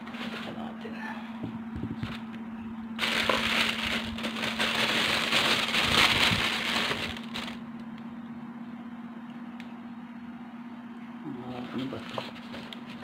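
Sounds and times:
crinkling handling noise: 0.0 - 0.8, 1.6 - 2.4, 3.0 - 8.0, 11.5 - 13.0
steady low hum: 0.0 - 13.0.

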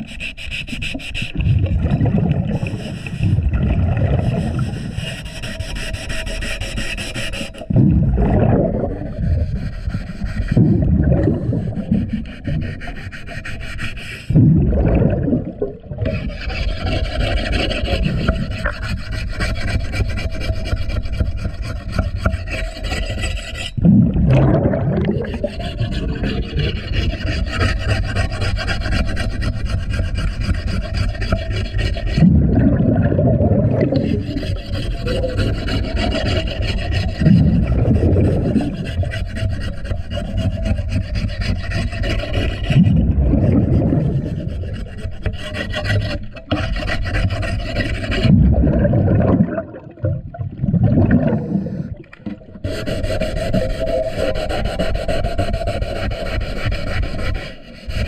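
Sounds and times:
underwater scraping of propeller: 0.0 - 58.0
scuba exhalation bubbles: 1.4 - 4.8, 7.7 - 9.5, 10.5 - 12.3, 14.3 - 16.3, 23.8 - 26.7, 32.1 - 35.3, 37.2 - 39.1, 42.7 - 44.7, 48.2 - 52.7.

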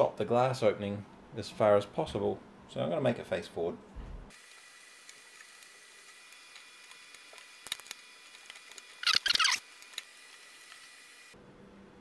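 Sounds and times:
metal pin squeaking and scraping: 9.0 - 9.6.

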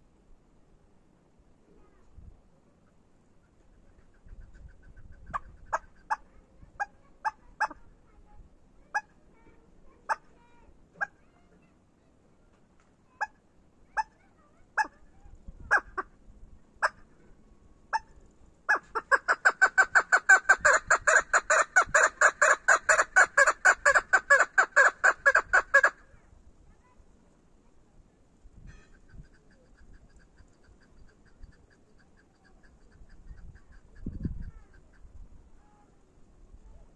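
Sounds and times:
partridge calling: 3.4 - 7.9, 17.9 - 26.0, 28.6 - 35.2.

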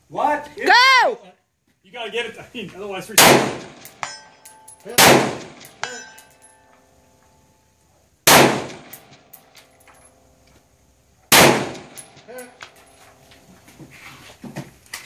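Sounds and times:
rifle shots echoing: 3.2 - 4.2, 4.9 - 6.0, 8.2 - 9.3, 11.3 - 12.2
distant steel target ringing: 3.5 - 6.9.

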